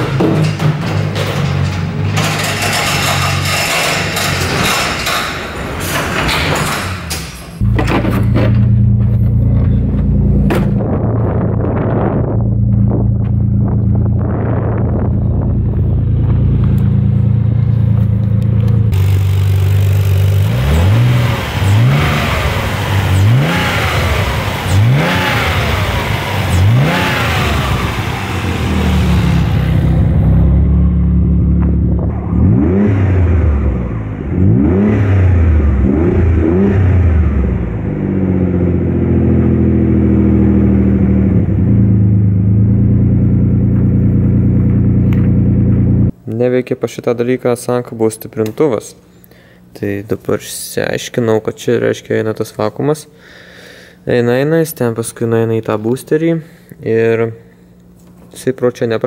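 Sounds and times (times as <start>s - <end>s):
car engine revving and idling: 7.6s - 46.2s.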